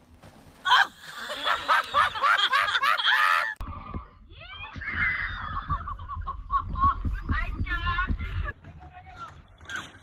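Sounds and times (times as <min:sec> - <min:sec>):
people laughing breathlessly: 0:00.7 - 0:03.6.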